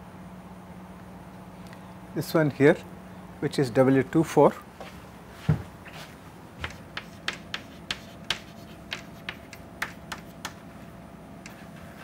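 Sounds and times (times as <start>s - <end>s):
chalk tapping on blackboard: 6.6s - 10.6s.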